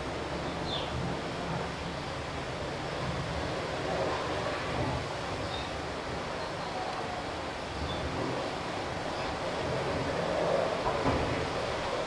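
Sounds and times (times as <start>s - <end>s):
even outdoor hiss: 0.0s - 12.0s.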